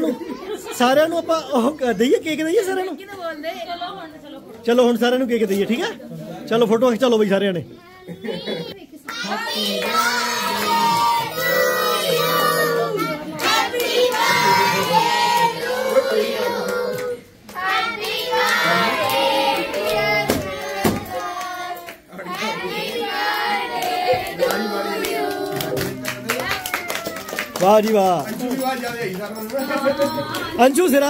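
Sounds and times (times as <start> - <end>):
children singing together: 9.2 - 25.8
children clapping: 13.4 - 16.0, 23.7 - 30.7.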